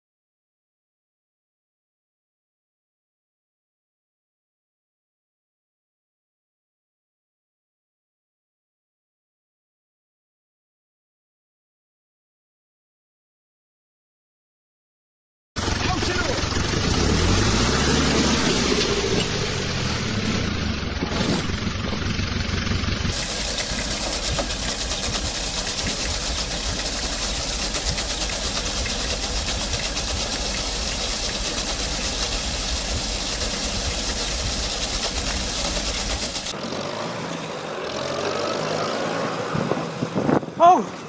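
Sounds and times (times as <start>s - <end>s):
tractor engine chugging: 15.6s - 36.6s
quieter engine rising in pitch: 15.6s - 40.5s.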